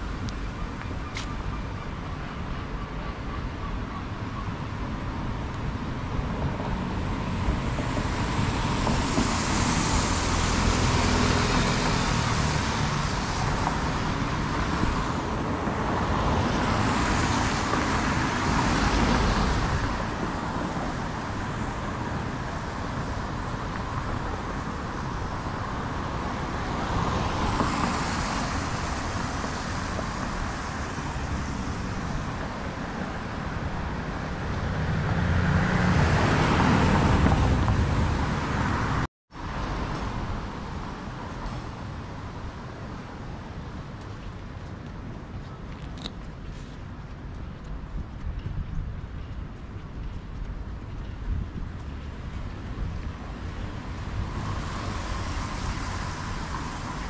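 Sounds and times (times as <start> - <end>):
traffic driving past: 0.0 - 47.8, 50.2 - 57.0.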